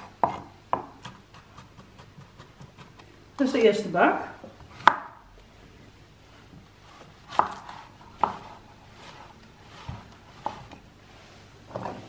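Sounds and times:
knife chopping on wooden board: 0:00.0 - 0:03.0, 0:04.7 - 0:05.2, 0:07.0 - 0:09.2.

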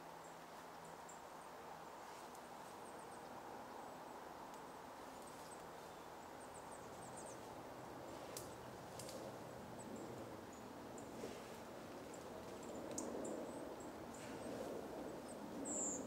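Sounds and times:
small birds calling: 0:15.1 - 0:16.0.

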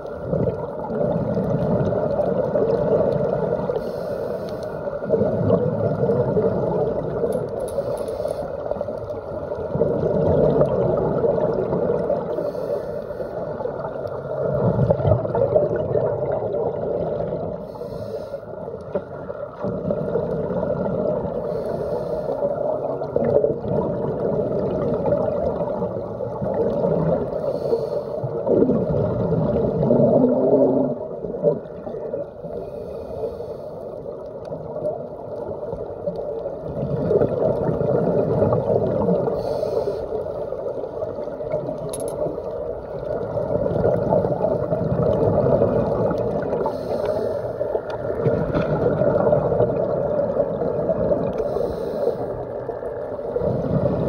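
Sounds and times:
underwater diver bubbles and breathing: 0:00.0 - 0:54.0.

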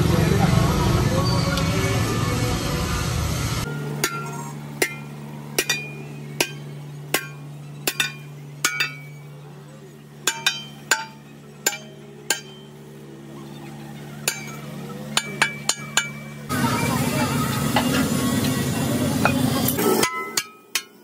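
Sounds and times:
steady low hum: 0:01.8 - 0:20.6
hammer striking steel rim: 0:03.7 - 0:09.2, 0:10.2 - 0:12.8, 0:14.2 - 0:16.4, 0:19.2 - 0:21.0.

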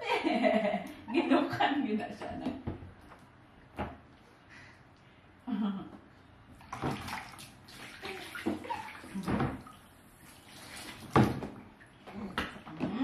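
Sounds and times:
bath water splashing: 0:06.6 - 0:12.1.

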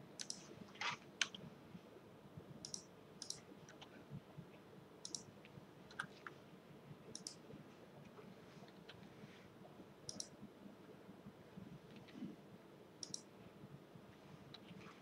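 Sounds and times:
low room hum: 0:00.0 - 0:15.0
computer mouse clicks: 0:00.2 - 0:00.5, 0:02.6 - 0:03.9, 0:05.0 - 0:05.3, 0:07.1 - 0:07.4, 0:10.1 - 0:10.4, 0:13.0 - 0:13.3.

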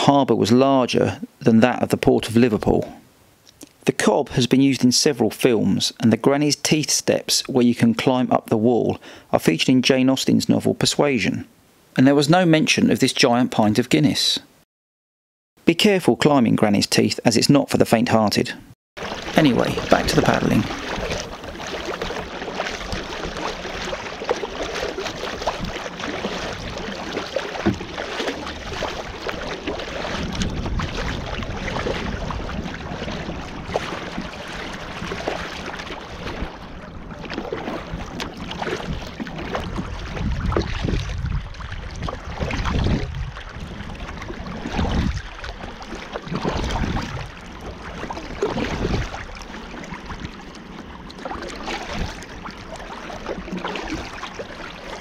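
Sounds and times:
paddle blades splashing: 0:19.0 - 0:55.0
water washing along hull: 0:19.0 - 0:55.0
wind on microphone: 0:19.6 - 0:49.4.

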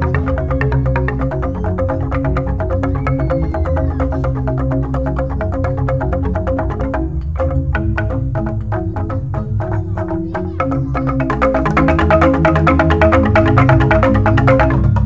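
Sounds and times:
bamboo xylophones struck: 0:00.0 - 0:15.0
deep bass tube tones: 0:00.0 - 0:15.0.

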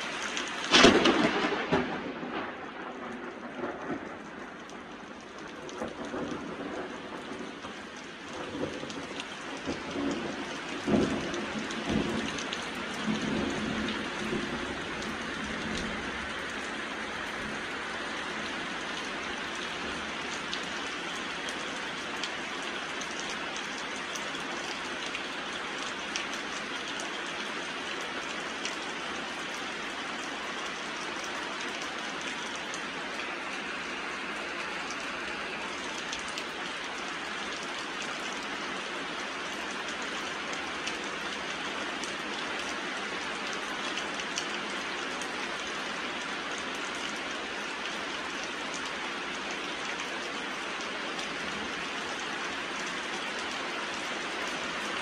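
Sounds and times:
steady rain pouring: 0:00.0 - 0:55.0
thunder rumbling: 0:00.6 - 0:05.1, 0:05.7 - 0:17.9.

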